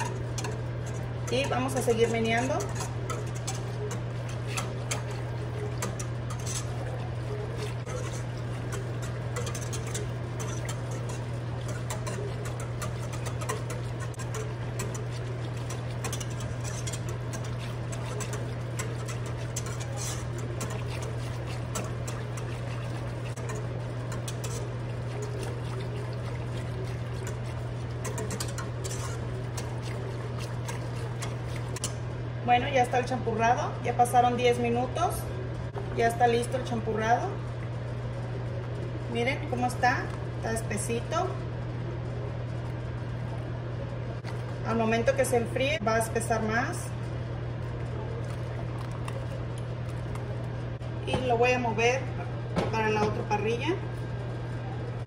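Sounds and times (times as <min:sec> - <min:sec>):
whisk clicking against pot: 0:00.0 - 0:32.1
whisk stirring thick liquid: 0:00.0 - 0:33.2, 0:42.1 - 0:45.6, 0:46.2 - 0:50.9
steady low hum: 0:00.0 - 0:55.0.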